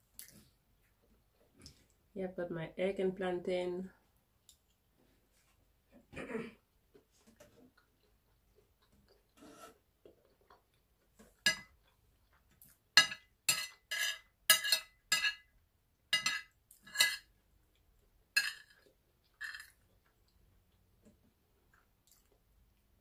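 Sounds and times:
metal spoon clinking on ceramic plate: 11.5s - 11.7s, 13.0s - 15.5s, 16.1s - 17.3s, 18.4s - 18.7s.

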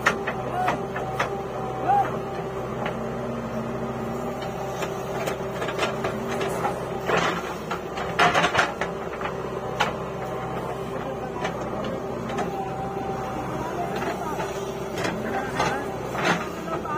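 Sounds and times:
diesel engine running: 0.0s - 16.9s
soil rushing and clattering: 4.1s - 16.9s.

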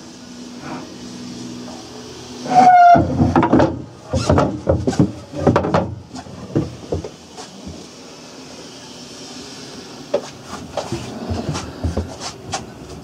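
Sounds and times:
short high squeak: 2.4s - 3.1s
irregular knocks and clunks: 2.9s - 7.8s.

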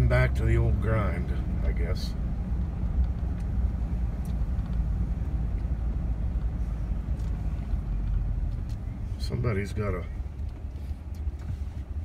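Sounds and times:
vehicle rumbling from inside cab: 0.0s - 12.0s.

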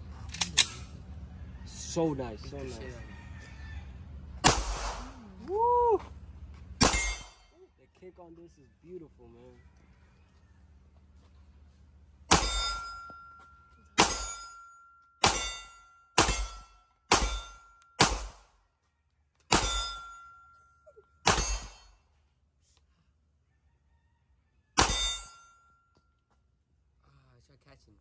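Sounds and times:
pistol shots echoing: 4.4s - 5.2s, 14.0s - 14.4s, 15.2s - 18.4s, 19.5s - 20.0s.

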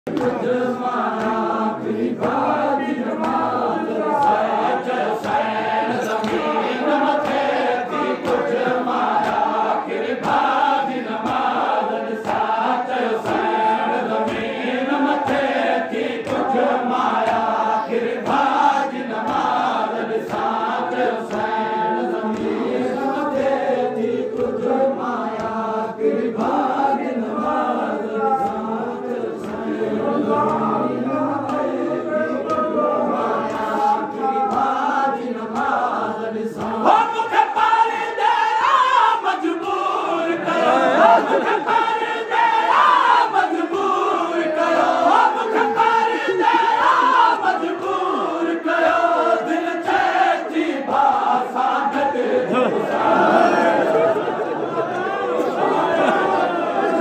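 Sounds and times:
men chanting in chorus: 0.1s - 57.0s
rhythmic chest-beating strikes: 0.1s - 57.0s.

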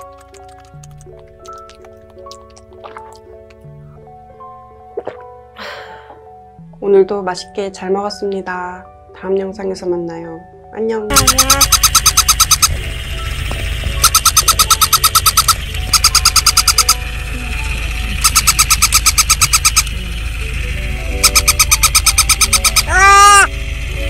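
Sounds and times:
soft background music: 0.0s - 24.0s
toy puppy yapping: 11.1s - 12.7s, 14.0s - 17.0s, 21.2s - 23.5s
toy squealing: 11.1s - 12.7s, 14.0s - 17.0s, 21.2s - 23.5s.

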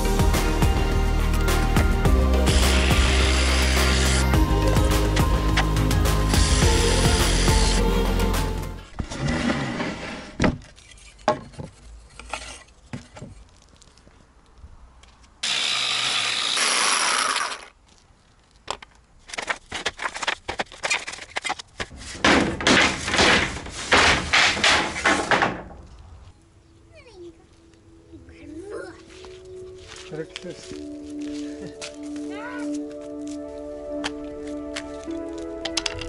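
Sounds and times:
electric jigsaw cutting wood: 2.4s - 4.4s, 6.3s - 7.9s, 15.4s - 17.7s
wooden boards knocking: 22.2s - 25.8s.

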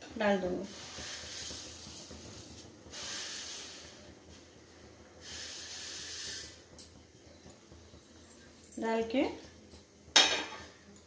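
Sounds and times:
noodles poured into boiling water: 0.6s - 6.7s.

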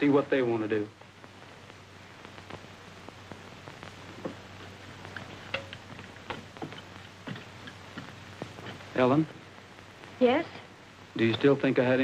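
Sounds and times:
film soundtrack hiss and hum: 0.0s - 12.0s
light footsteps: 3.7s - 10.2s.

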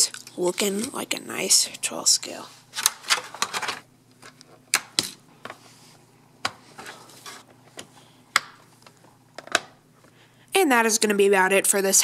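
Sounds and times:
plastic shell rustle: 2.8s - 4.4s.

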